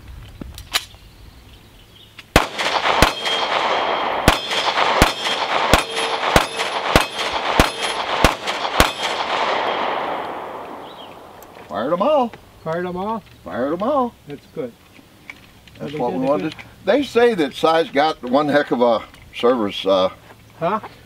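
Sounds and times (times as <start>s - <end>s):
pistol shots with echo: 2.3s - 11.4s.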